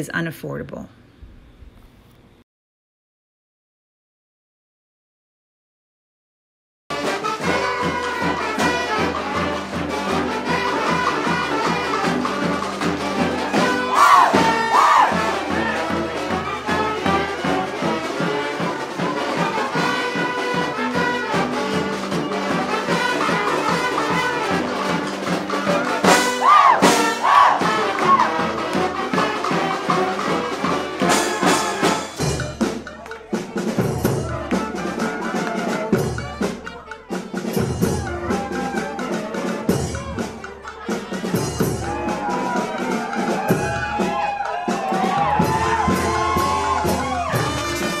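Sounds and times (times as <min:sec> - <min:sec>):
loud sliding brass call: 0:06.9 - 0:18.2, 0:19.3 - 0:32.2, 0:44.4 - 0:48.0
brass band playing: 0:06.9 - 0:48.0.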